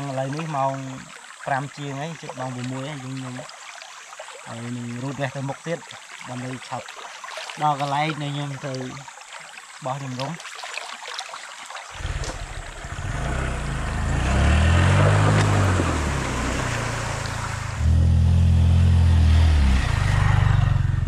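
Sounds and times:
motorcycle engine revving: 12.0s - 21.0s.

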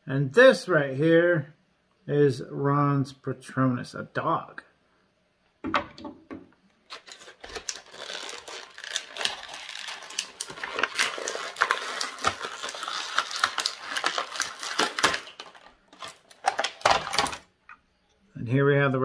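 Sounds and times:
plastic bag crinkling: 6.9s - 17.5s.

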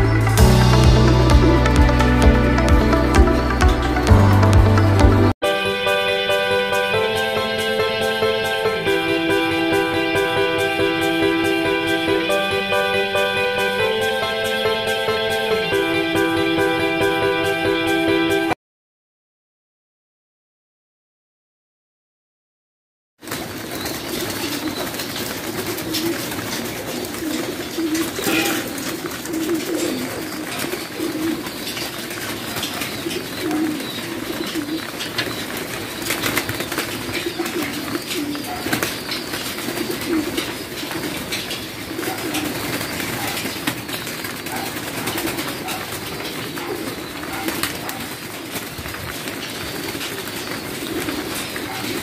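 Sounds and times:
pigeons cooing: 23.5s - 52.0s.

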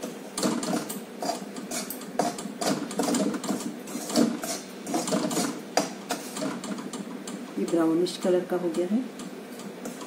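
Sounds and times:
spatula scraping an iron pan: 1.2s - 5.6s.

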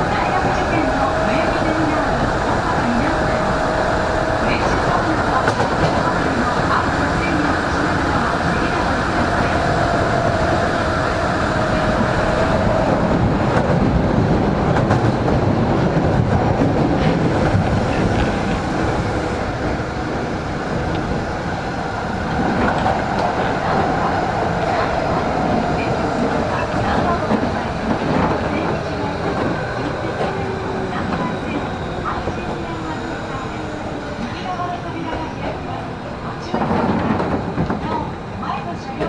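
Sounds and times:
train wheels rumbling on rail: 0.0s - 39.0s.

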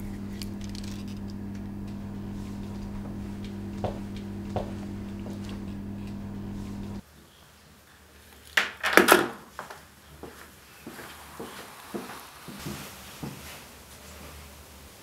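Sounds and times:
low steady hum: 0.0s - 7.0s.

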